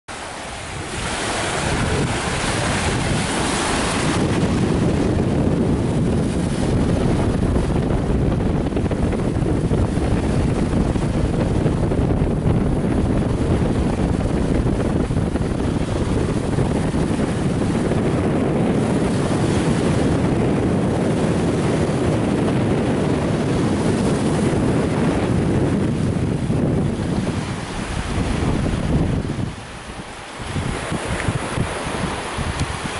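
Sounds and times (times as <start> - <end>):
small waves washing on sand: 0.1 - 32.9
wind buffeting microphone: 0.1 - 32.9.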